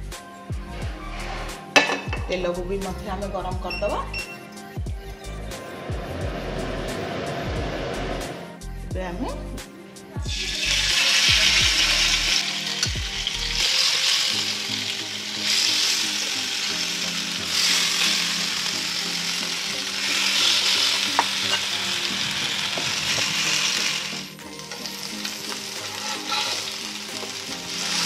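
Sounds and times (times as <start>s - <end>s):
fish sizzling in frying pan: 10.3s - 28.0s.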